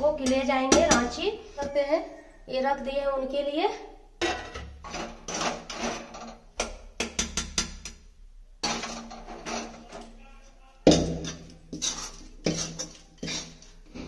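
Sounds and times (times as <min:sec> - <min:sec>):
steel spoon scraping a pan: 0:04.3 - 0:06.5, 0:08.6 - 0:10.2, 0:11.0 - 0:14.0.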